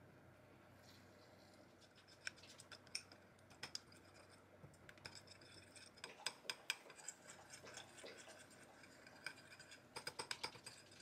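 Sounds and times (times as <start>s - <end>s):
spoon scraping and clinking bowl: 5.0s - 11.0s.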